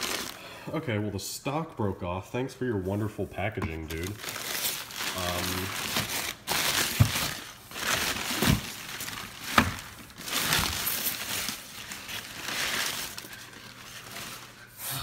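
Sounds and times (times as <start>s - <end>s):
paper and bubble wrap rustling: 0.0s - 0.4s, 3.8s - 15.0s.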